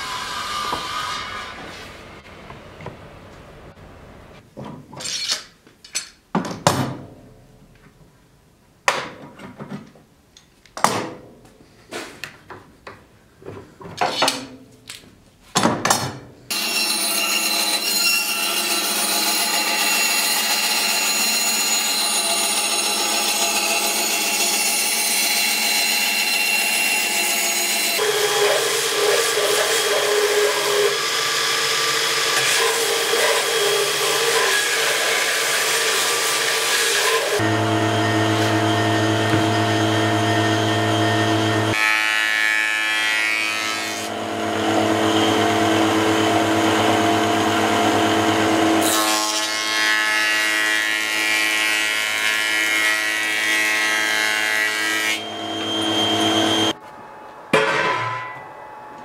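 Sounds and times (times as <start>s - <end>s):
band saw whine: 16.5s - 41.8s, 44.1s - 49.0s, 55.1s - 56.8s.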